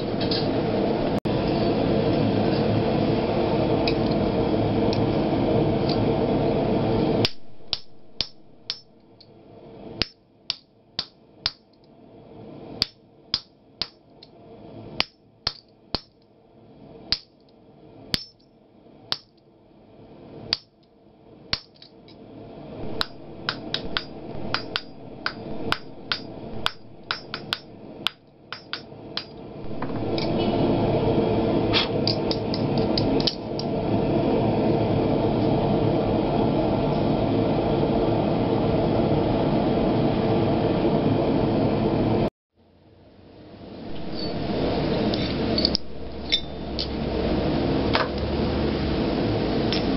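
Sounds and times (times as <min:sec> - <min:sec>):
hammer striking metal: 0:07.2 - 0:08.9, 0:18.1 - 0:18.4, 0:22.8 - 0:30.5, 0:45.2 - 0:46.9
loud rushing noise: 0:22.4 - 0:28.0, 0:28.9 - 0:39.5.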